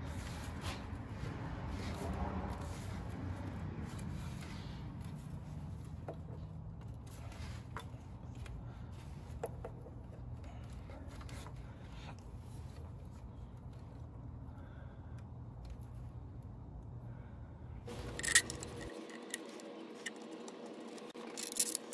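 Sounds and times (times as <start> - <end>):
steady low hum: 0.0 - 21.9.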